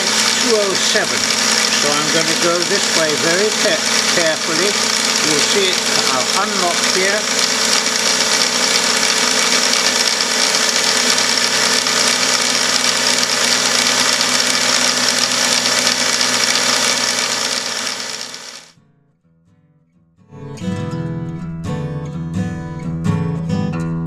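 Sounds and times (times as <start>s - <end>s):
milling machine spindle running: 0.0s - 18.7s.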